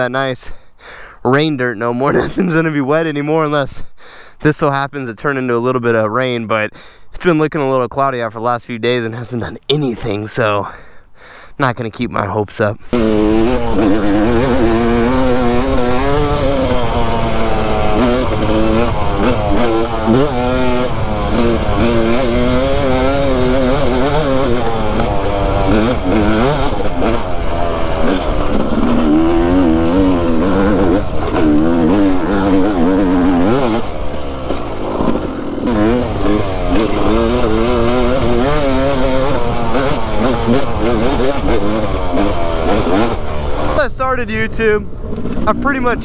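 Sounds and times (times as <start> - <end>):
two-stroke motorcycle engine revving: 12.8 - 46.0.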